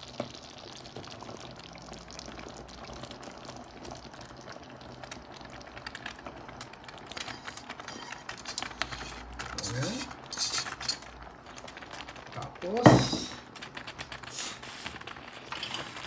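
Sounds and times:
sauce bubbling in a frying pan: 0:00.0 - 0:16.0
wet clicks and splats: 0:04.9 - 0:07.7.

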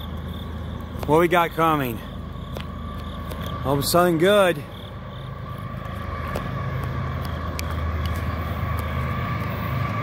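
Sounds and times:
diesel locomotive engine drone: 0:00.0 - 0:10.0.

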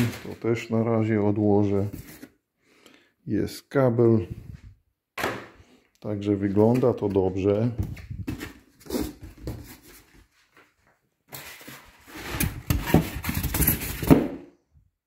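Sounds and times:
cardboard and foam rustling: 0:01.7 - 0:02.4, 0:06.6 - 0:14.4.

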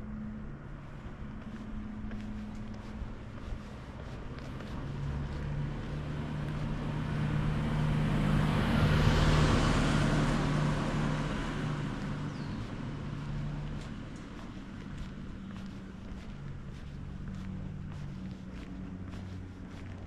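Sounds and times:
low engine hum: 0:00.0 - 0:20.0.

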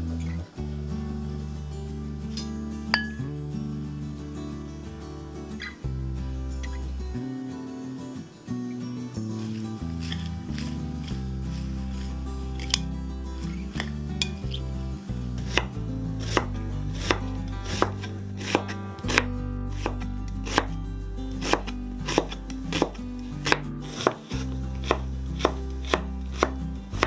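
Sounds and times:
knife chopping on cutting board: 0:16.3 - 0:20.7, 0:21.4 - 0:26.5.

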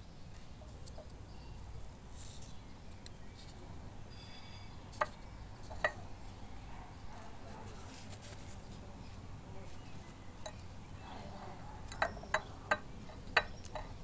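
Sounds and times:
light clicks and clinks on ceramic: 0:04.1 - 0:06.1, 0:10.4 - 0:10.7, 0:11.6 - 0:14.0.

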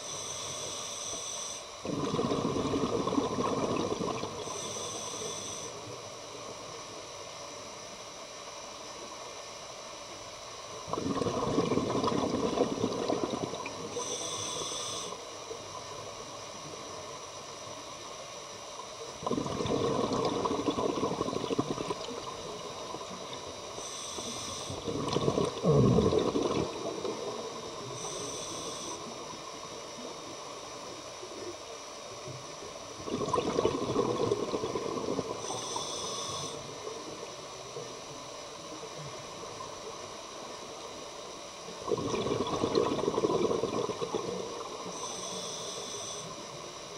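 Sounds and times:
regulator hissing on inhale: 0:00.0 - 0:02.7, 0:03.5 - 0:06.0, 0:11.2 - 0:15.4, 0:23.6 - 0:25.8, 0:26.5 - 0:29.8, 0:34.1 - 0:36.8, 0:42.5 - 0:46.4
steady background hiss: 0:00.0 - 0:46.9
bubbles burbling underwater: 0:01.8 - 0:04.5, 0:10.9 - 0:14.0, 0:19.2 - 0:23.6, 0:24.7 - 0:28.0, 0:33.0 - 0:35.5, 0:41.7 - 0:44.9.

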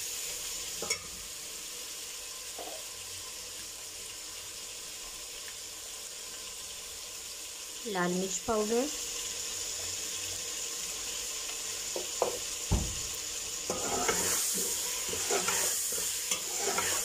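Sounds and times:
curry sizzling in a pot: 0:00.0 - 0:17.0
metal spoon scraping pot: 0:13.7 - 0:17.0.

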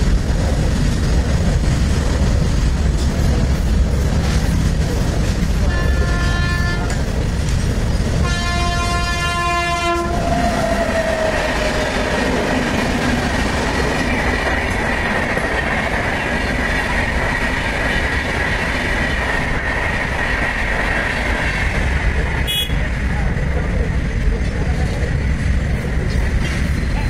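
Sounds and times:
train running on rails: 0:00.0 - 0:27.0
train horn blast: 0:05.6 - 0:07.0, 0:08.2 - 0:10.4, 0:22.4 - 0:22.8.

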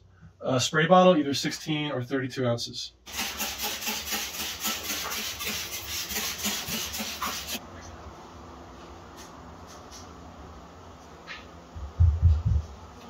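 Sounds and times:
scrub pad scrubbing wet windshield: 0:03.1 - 0:07.6.

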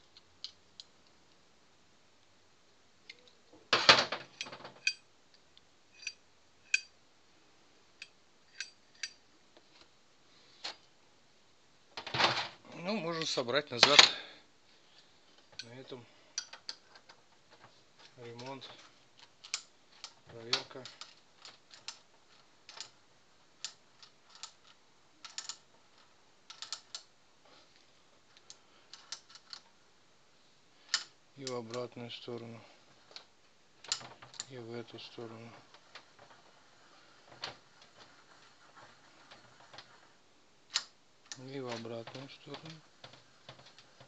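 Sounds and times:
metallic clicks of steel parts: 0:03.1 - 0:07.0, 0:08.0 - 0:09.3, 0:15.4 - 0:23.0, 0:23.6 - 0:27.1, 0:28.4 - 0:29.7, 0:30.9 - 0:32.5.

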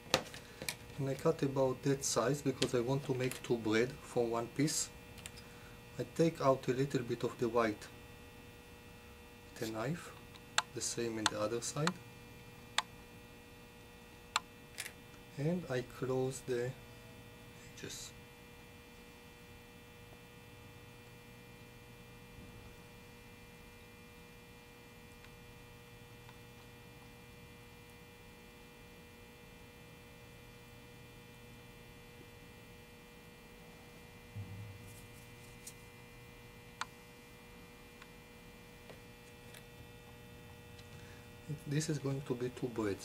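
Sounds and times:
electrical mains hum: 0:00.0 - 0:43.0
soft knock: 0:34.4 - 0:34.9.

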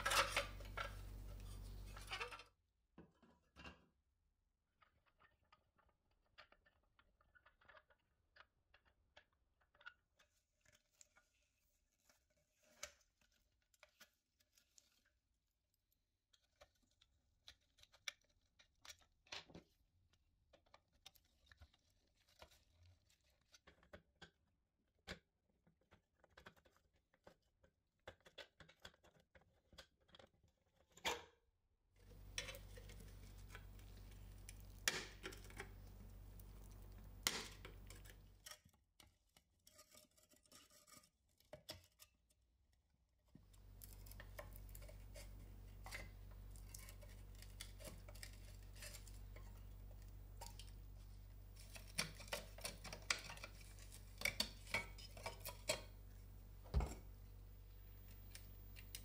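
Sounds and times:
faint low hum: 0:00.0 - 0:02.4, 0:32.0 - 0:38.5, 0:43.5 - 0:59.0.

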